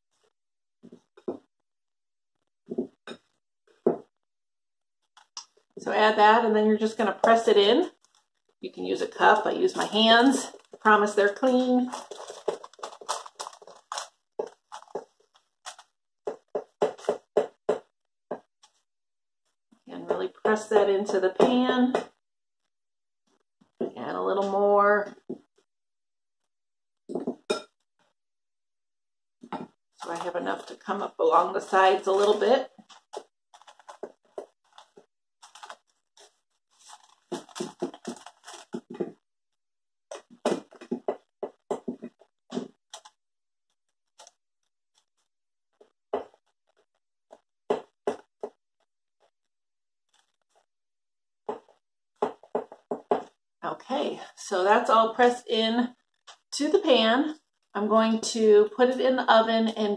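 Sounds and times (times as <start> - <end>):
crumb crust crunching: 9.2 - 18.8, 31.6 - 39.2.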